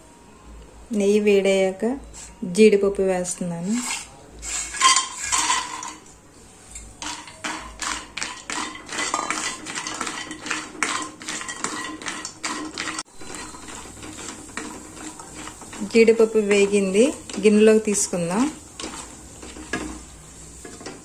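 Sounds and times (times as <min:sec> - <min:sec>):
spatula scraping a pan: 0:03.6 - 0:06.0, 0:06.6 - 0:21.0
nuts clattering into a pan: 0:04.7 - 0:06.0, 0:07.0 - 0:13.9.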